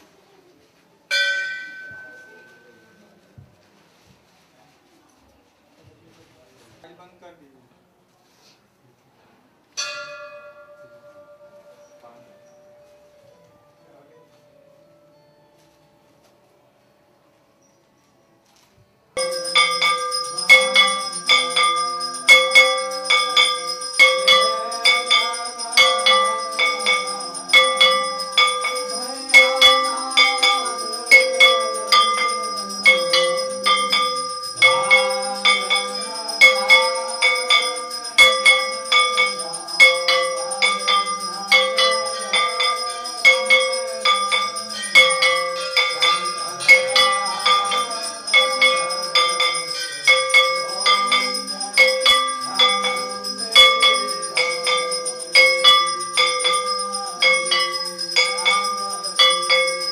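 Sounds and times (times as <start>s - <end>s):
metal gongs ringing: 19.2s - 59.9s.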